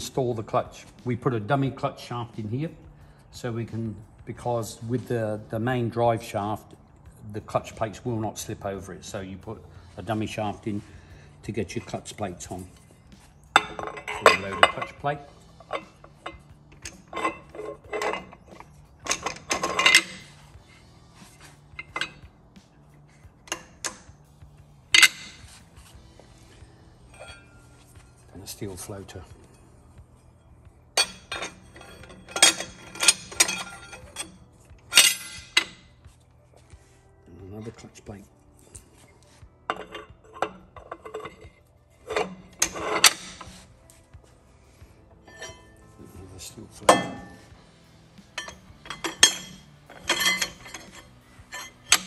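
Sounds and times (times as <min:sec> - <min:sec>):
metal clinks and clatter: 0:11.8 - 0:20.8, 0:27.1 - 0:28.3, 0:31.0 - 0:35.8, 0:45.3 - 0:45.9, 0:48.2 - 0:52.0
metal plates knocking and scraping: 0:13.6 - 0:20.4, 0:30.9 - 0:35.8, 0:39.7 - 0:43.7, 0:46.8 - 0:47.6, 0:48.2 - 0:52.0.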